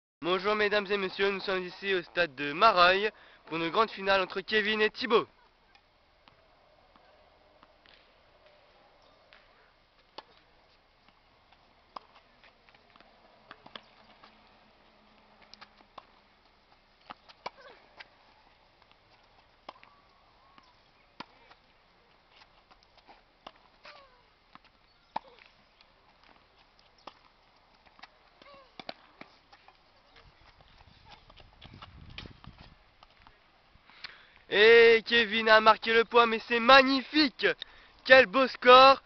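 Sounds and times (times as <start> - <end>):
tennis balls struck and bouncing: 6.2 - 29.8.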